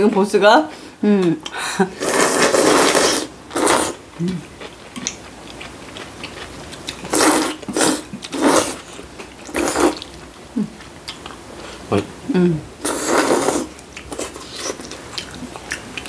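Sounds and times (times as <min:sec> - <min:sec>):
people slurping noodles: 0:01.9 - 0:04.4, 0:07.0 - 0:08.9, 0:09.5 - 0:10.0, 0:12.8 - 0:14.8.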